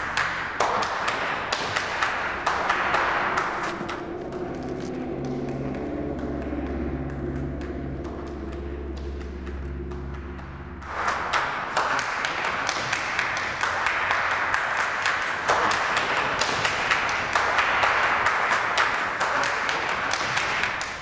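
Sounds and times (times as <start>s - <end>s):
low steady hum: 0.0s - 14.8s.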